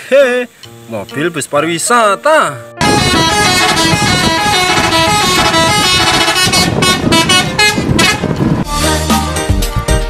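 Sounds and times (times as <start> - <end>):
musical bus horn: 2.8 - 9.0.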